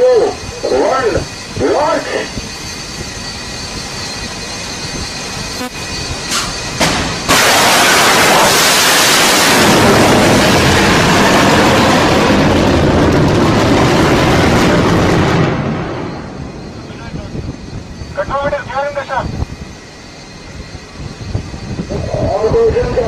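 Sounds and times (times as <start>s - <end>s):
missile booster roaring: 6.9s - 16.7s.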